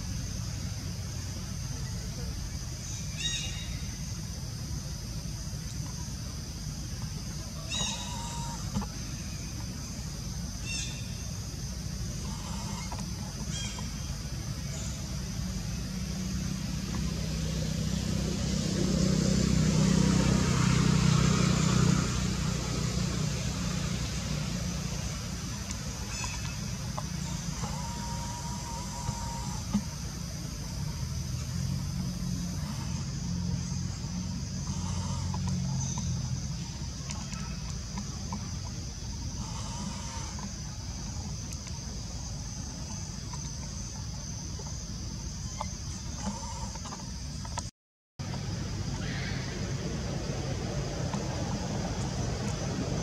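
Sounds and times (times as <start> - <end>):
low rumble: 48.2 - 53.0.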